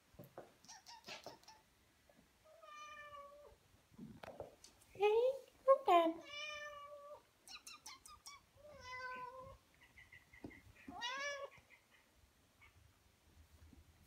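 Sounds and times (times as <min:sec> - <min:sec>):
cat meowing: 0:02.5 - 0:03.6, 0:06.2 - 0:09.6, 0:10.8 - 0:11.7.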